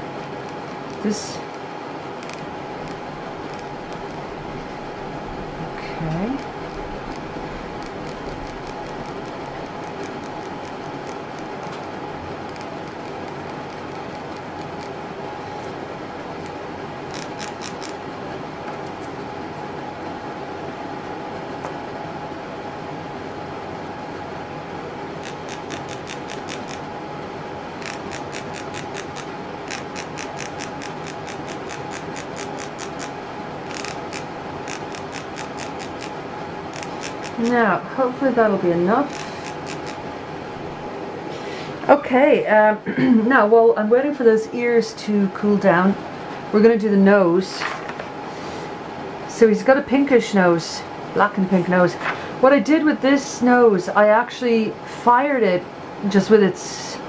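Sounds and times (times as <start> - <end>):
steady background hiss: 0.0 - 57.0
steady hum: 0.0 - 57.0
rhythmic rasping of sifter handle: 6.4 - 15.0, 27.8 - 37.6.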